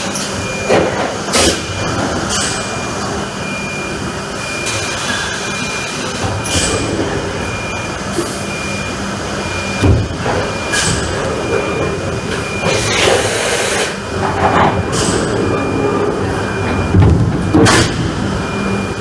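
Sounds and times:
machine mechanical din with whine: 0.0s - 19.0s
heavy machine thump: 9.8s - 12.9s, 16.6s - 18.2s.

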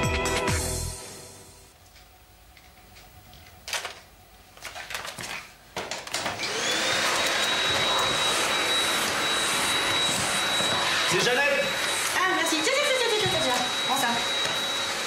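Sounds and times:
vacuum cleaner motor whine: 6.0s - 15.0s.

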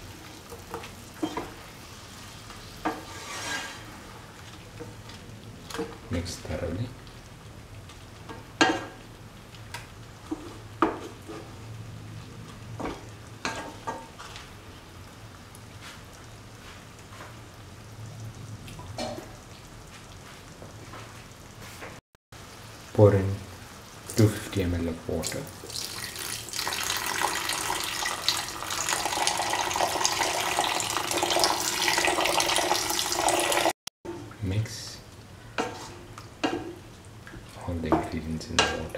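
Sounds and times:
spatula scraping and knocking pan: 2.8s - 3.9s, 10.2s - 11.6s, 35.6s - 36.8s
water pouring onto food: 25.2s - 33.7s.

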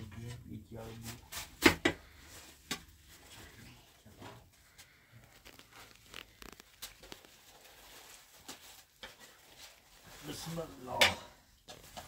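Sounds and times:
flatbread tearing: 4.8s - 9.4s.

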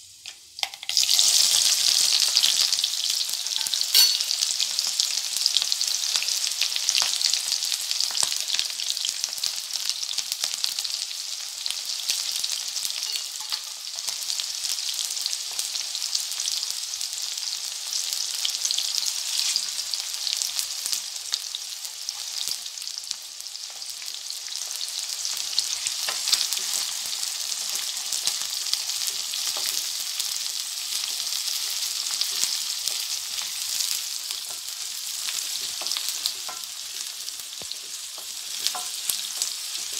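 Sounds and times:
onions sizzling in hot oil: 0.0s - 39.9s
spatula scraping pan: 19.1s - 19.7s.

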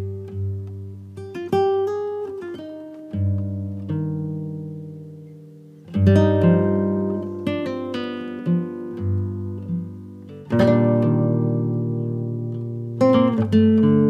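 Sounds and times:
plucked string music: 0.0s - 14.0s.

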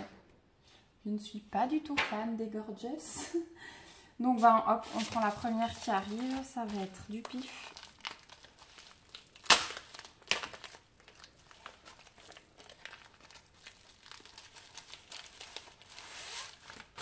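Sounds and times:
plastic rustle: 4.4s - 17.0s
plastic pouch crinkling: 4.8s - 17.0s
sharp plastic crackles: 4.9s - 17.0s.

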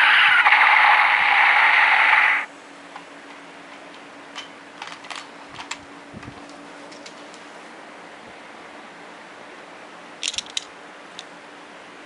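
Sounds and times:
toy electronic hissing whoosh: 0.0s - 2.5s.

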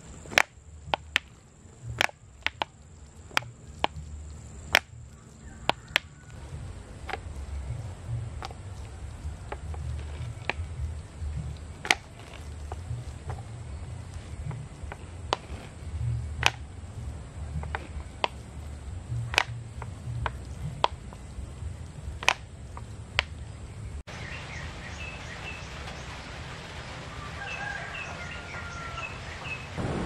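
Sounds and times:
sharp irregular clicks: 0.0s - 23.5s
low rumble: 0.0s - 24.1s, 29.7s - 30.0s
small birds chirping: 0.0s - 30.0s
steady hiss: 0.0s - 30.0s.

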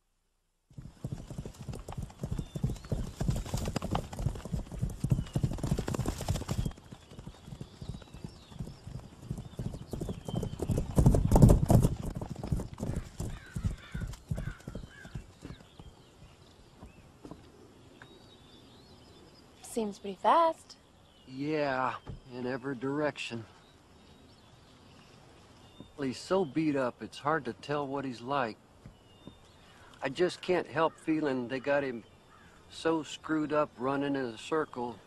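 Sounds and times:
horse hoofbeats galloping on dirt: 0.7s - 18.2s.

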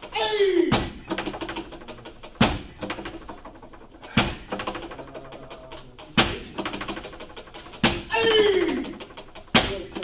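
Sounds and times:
punches thudding on striking board: 0.7s - 1.0s.

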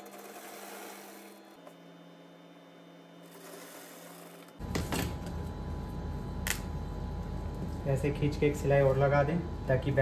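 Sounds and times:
sewing machine motor hum: 0.0s - 1.8s, 3.2s - 4.7s.

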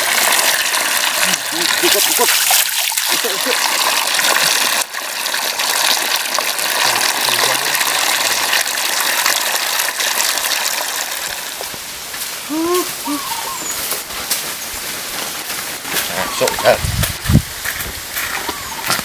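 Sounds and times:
water gushing from a pipe: 0.0s - 12.5s
water splashing on ground: 0.0s - 12.5s.

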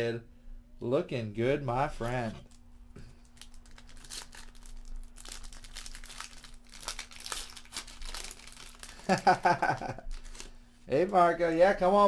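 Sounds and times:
foil wrapper crinkling and tearing: 3.2s - 11.4s.

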